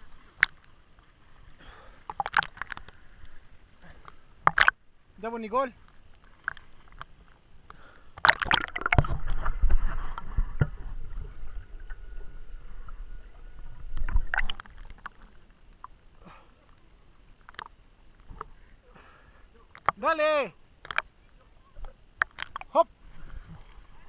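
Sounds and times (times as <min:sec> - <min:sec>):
water splashing: 0:00.0 - 0:18.6, 0:19.2 - 0:24.0
water gently lapping: 0:00.0 - 0:24.0
muffled underwater rumble and gurgling: 0:06.6 - 0:19.8.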